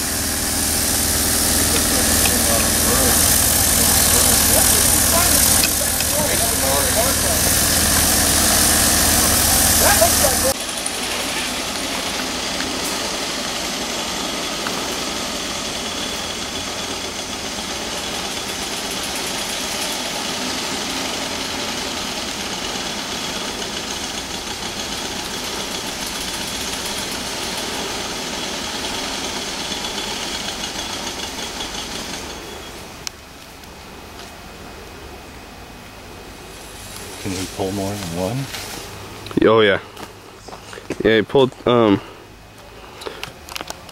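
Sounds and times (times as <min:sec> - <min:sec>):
engine idling: 0:00.0 - 0:43.9.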